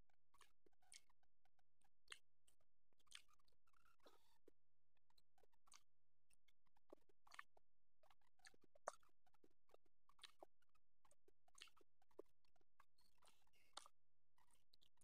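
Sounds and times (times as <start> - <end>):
chewing: 0.4 - 1.1, 3.1 - 3.4, 7.0 - 7.5, 8.4 - 9.1, 10.1 - 10.5, 11.6 - 12.3, 13.1 - 14.6.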